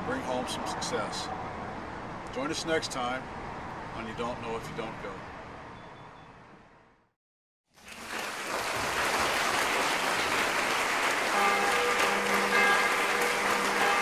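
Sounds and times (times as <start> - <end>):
dense applause: 7.8 - 14.0
sustained music notes: 11.2 - 14.0.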